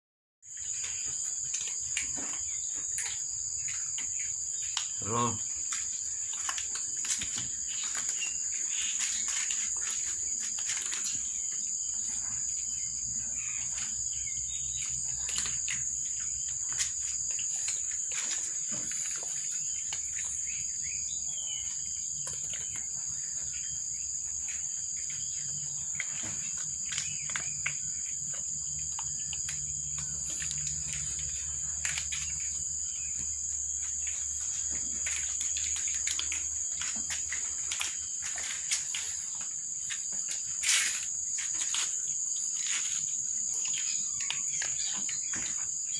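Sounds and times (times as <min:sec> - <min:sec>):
bird chirp: 0:00.5 - 0:45.9
cats crunching dry kibble: 0:25.2 - 0:32.8.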